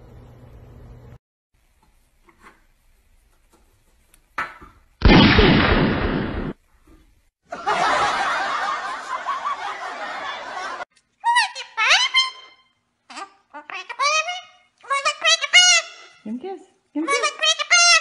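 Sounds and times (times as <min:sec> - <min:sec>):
loud bang: 0:05.0 - 0:06.6
people laughing: 0:07.5 - 0:10.9
parrot calling: 0:11.2 - 0:16.2, 0:17.1 - 0:18.0.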